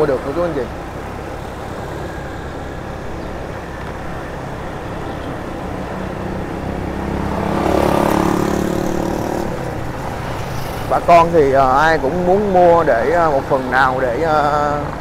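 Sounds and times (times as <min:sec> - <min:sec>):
vehicle engine passing close: 0:00.0 - 0:12.0
road traffic rumbling: 0:00.0 - 0:15.0.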